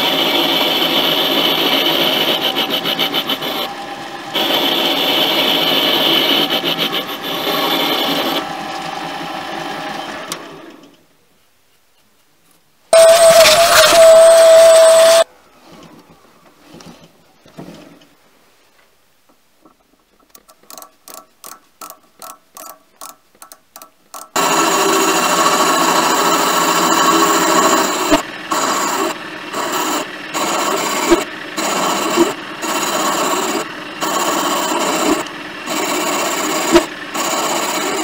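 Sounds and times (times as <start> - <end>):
lathe tool scraping metal: 0.0 - 3.8, 4.4 - 8.5, 13.0 - 15.2, 24.4 - 38.0.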